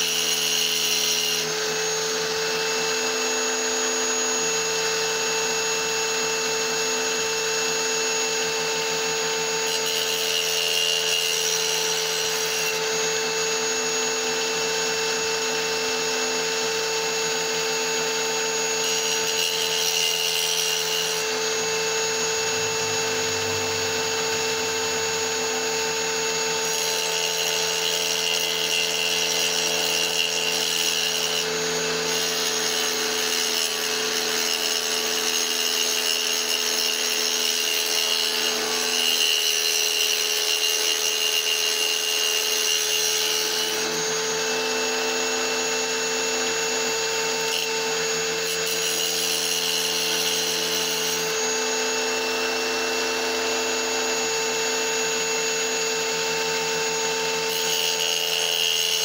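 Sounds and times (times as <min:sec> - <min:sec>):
stone grinding hiss: 0:00.0 - 0:01.6, 0:09.5 - 0:13.6, 0:18.4 - 0:44.2, 0:47.2 - 0:51.5, 0:57.3 - 0:59.0
power tool motor whine: 0:00.0 - 0:59.0.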